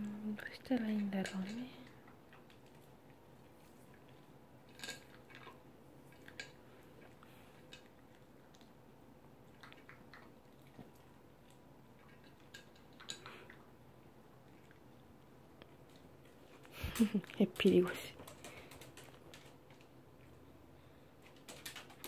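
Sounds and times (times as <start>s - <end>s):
dog chewing food: 1.2s - 17.4s.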